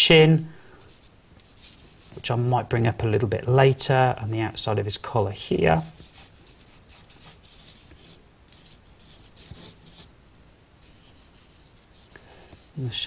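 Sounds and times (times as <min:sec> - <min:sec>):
charcoal scratching on paper: 0:00.8 - 0:02.2, 0:05.8 - 0:10.1, 0:10.8 - 0:12.9.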